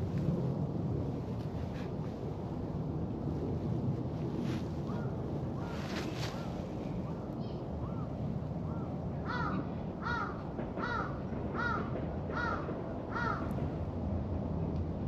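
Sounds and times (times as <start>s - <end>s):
crow cawing: 9.2s - 13.5s.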